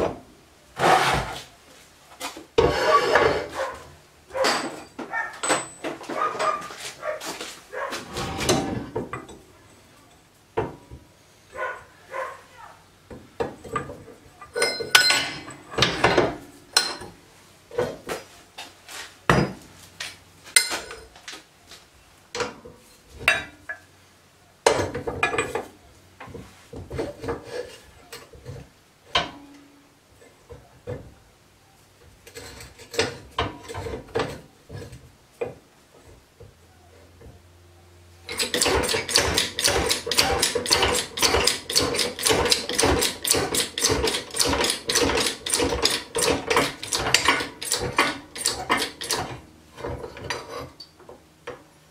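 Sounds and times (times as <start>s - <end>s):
metal clinks and clanks: 4.4s - 6.0s, 14.5s - 17.1s, 38.3s - 49.3s.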